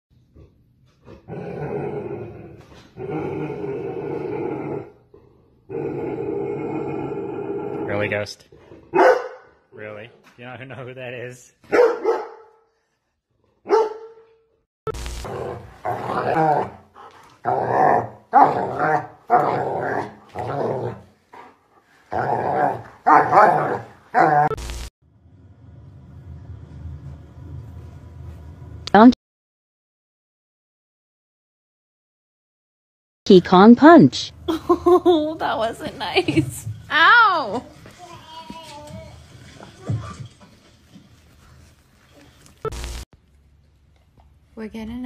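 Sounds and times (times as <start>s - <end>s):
dog growling: 0.2s - 9.0s, 15.2s - 24.6s.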